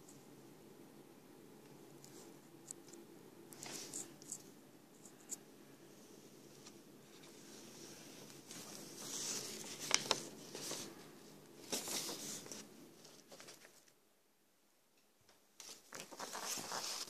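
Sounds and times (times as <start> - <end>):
rustling handling noise: 6.3 - 14.0, 15.6 - 17.0.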